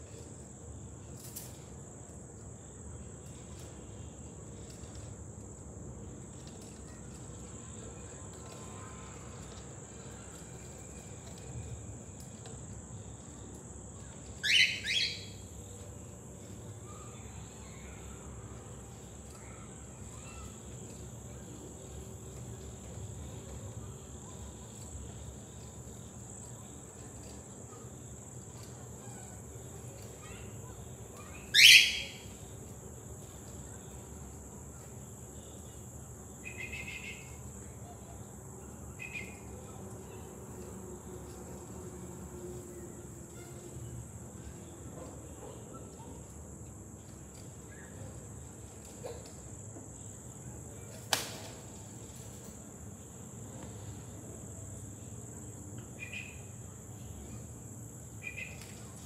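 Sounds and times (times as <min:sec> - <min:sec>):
cockatiel calls: 0:14.4 - 0:15.4, 0:31.5 - 0:32.3.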